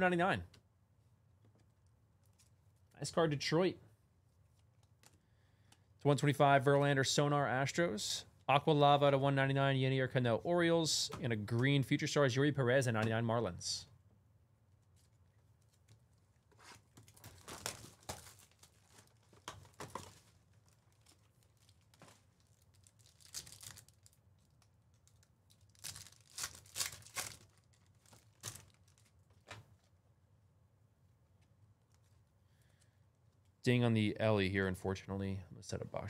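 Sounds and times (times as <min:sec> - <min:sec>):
foil wrapper tearing and crinkling: 0:17.0 - 0:29.2.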